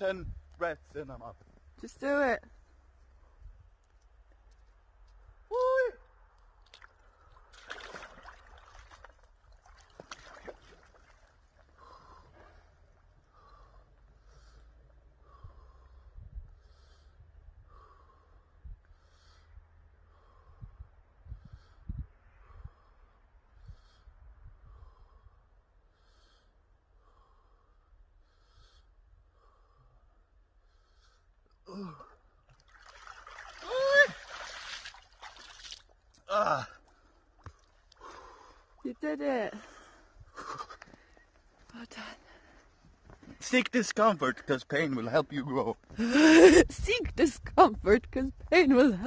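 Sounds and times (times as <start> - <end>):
icy water sloshing and splashing: 6.6 - 11.8, 32.5 - 37.0
man breathing slowly: 11.6 - 32.4, 36.8 - 38.8, 39.6 - 43.4.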